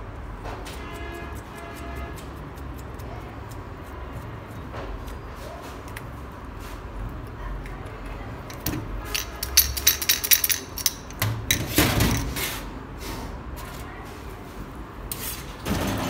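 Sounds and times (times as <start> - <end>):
metal parts clicking and clinking: 8.4 - 12.4.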